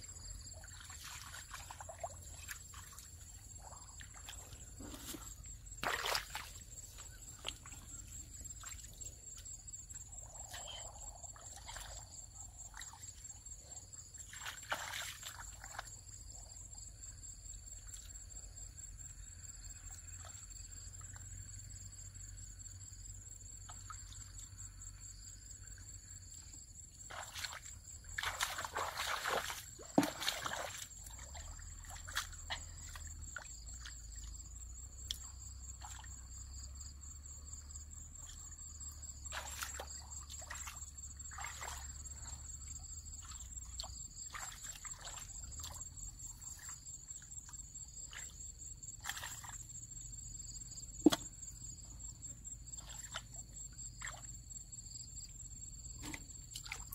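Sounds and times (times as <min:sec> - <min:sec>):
insects trilling: 0:00.0 - 0:56.9
water splashing: 0:00.5 - 0:09.1, 0:14.2 - 0:15.8, 0:27.1 - 0:33.1, 0:39.3 - 0:42.4.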